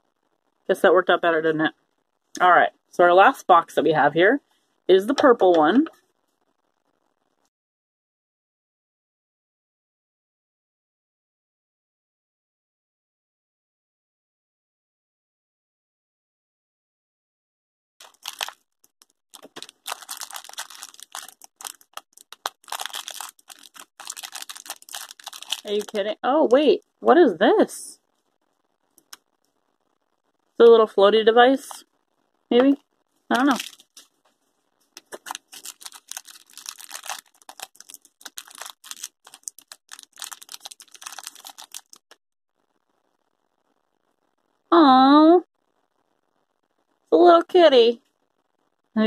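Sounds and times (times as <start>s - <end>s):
plastic wrapper tearing and crinkling: 18.0s - 26.2s, 33.3s - 34.2s, 34.9s - 42.2s.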